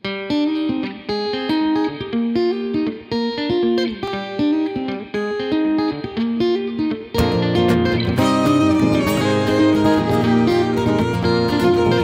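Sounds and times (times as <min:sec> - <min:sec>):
acoustic guitar picking: 0:05.8 - 0:12.0.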